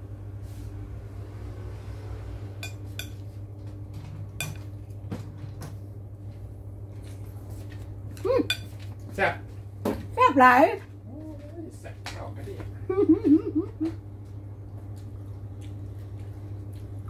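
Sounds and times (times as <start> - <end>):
steady low hum: 0.0 - 17.0
metal spoon clinking on ceramic plate: 2.6 - 3.2, 8.5 - 8.7.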